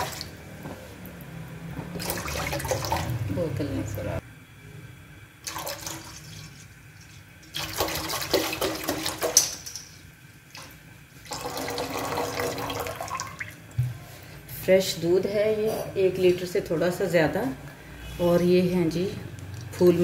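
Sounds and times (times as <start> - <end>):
milk pouring into saucepan: 11.3 - 13.6.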